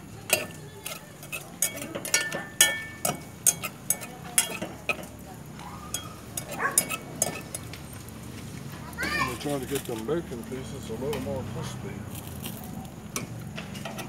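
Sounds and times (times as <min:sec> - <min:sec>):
metal utensil scraping pot: 0:00.2 - 0:05.2, 0:05.8 - 0:07.7, 0:13.2 - 0:14.0.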